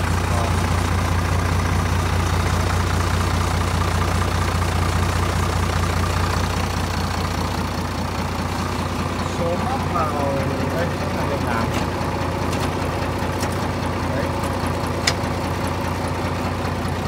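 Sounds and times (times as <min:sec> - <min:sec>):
tractor diesel engine idling: 0:00.0 - 0:17.0.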